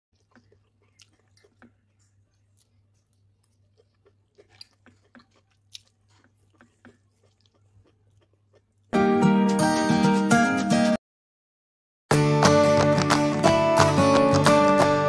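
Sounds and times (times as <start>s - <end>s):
eating with a fork: 0.2s - 9.0s.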